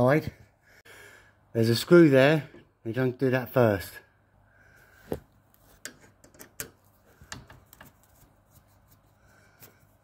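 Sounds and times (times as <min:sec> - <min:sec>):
screwdriver clicking and scraping: 0:05.6 - 0:08.1.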